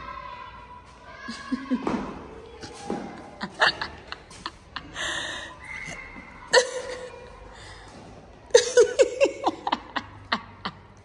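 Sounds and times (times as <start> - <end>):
person laughing: 3.4 - 5.4, 8.5 - 11.0.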